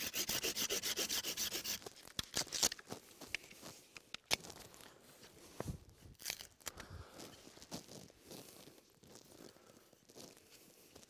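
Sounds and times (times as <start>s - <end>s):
blade sawing a branch: 0.0s - 1.9s.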